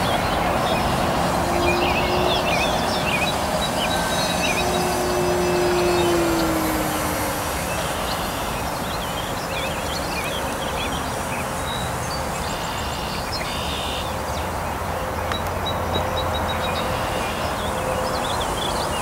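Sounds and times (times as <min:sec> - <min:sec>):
birds chirping: 0:00.0 - 0:19.0
steady rushing noise: 0:00.0 - 0:19.0
model plane motor whining: 0:00.4 - 0:12.8.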